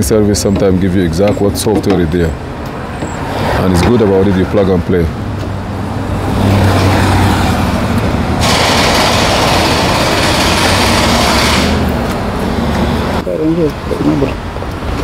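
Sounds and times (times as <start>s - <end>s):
engine hum: 0.0s - 15.0s
loud hiss: 8.4s - 11.9s.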